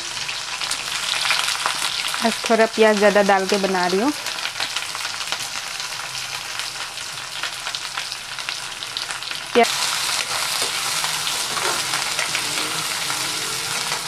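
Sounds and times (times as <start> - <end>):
onions sizzling in hot oil: 0.0 - 14.0
spatula stirring: 10.2 - 14.0.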